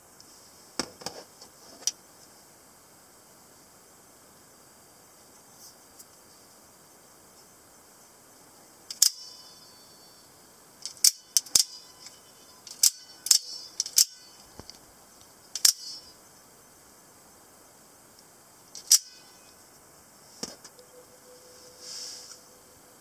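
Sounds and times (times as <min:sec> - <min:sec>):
spring knife metallic snaps: 0:08.9 - 0:09.3, 0:10.8 - 0:14.4, 0:15.6 - 0:16.1, 0:18.8 - 0:19.2.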